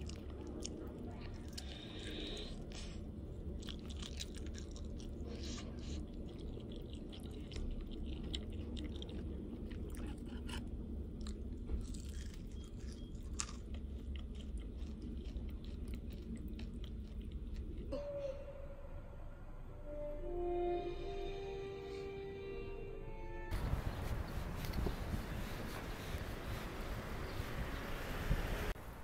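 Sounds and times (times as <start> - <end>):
crunchy chewing: 0.0 - 17.9
low steady hum: 0.0 - 29.0.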